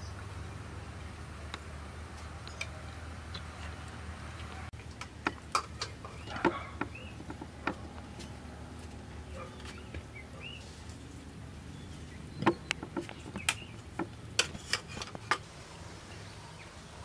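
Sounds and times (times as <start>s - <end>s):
bird chirps: 5.8s - 7.3s, 9.3s - 10.8s, 11.7s - 13.8s.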